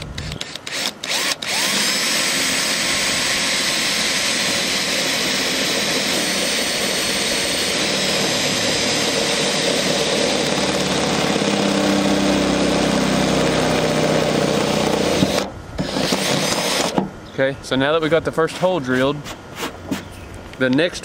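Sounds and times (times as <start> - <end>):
cordless drill whining: 0.0 - 17.0
drill bit cutting sheet metal: 0.0 - 17.0.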